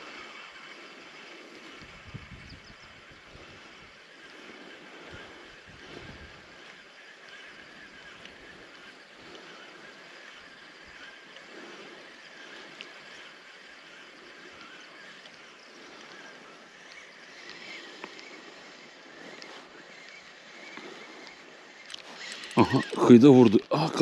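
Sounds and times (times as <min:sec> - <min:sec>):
small clicks: 0:08.1 - 0:08.4, 0:12.6 - 0:13.0, 0:19.2 - 0:23.0.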